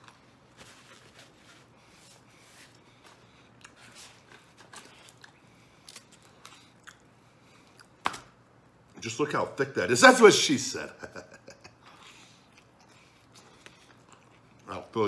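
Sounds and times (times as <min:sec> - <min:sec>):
faint chewing: 0:02.2 - 0:08.0, 0:11.6 - 0:15.0.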